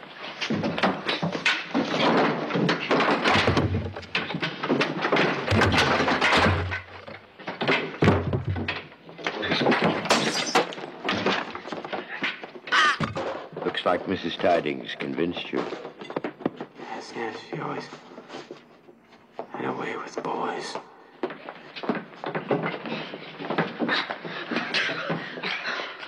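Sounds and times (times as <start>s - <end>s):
clatter of knocks and crashes: 0.2s - 16.7s.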